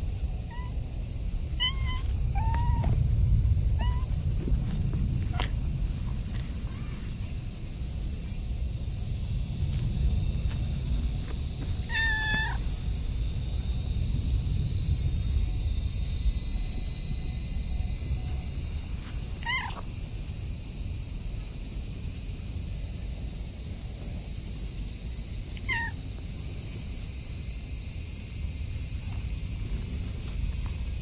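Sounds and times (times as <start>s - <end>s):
high-pitched hiss: 0.0s - 31.0s
low rumble: 0.1s - 19.0s
cat meowing: 0.5s - 0.8s, 1.6s - 3.0s, 3.8s - 4.2s, 11.8s - 12.6s, 19.4s - 19.8s, 25.6s - 26.0s.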